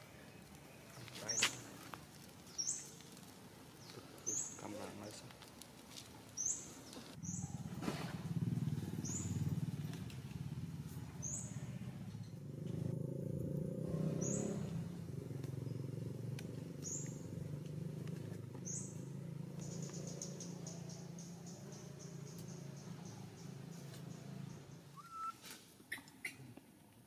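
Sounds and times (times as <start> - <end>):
bird chirping: 2.4 - 3.0, 3.8 - 5.2, 6.4 - 7.6, 8.8 - 9.7, 11.2 - 12.4, 13.9 - 16.2, 16.8 - 17.5, 18.6 - 26.4.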